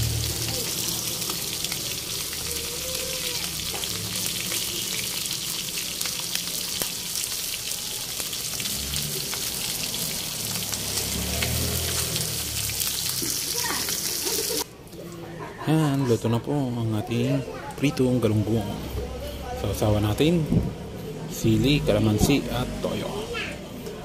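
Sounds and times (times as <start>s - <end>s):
fish frying in hot oil: 0.0s - 14.6s.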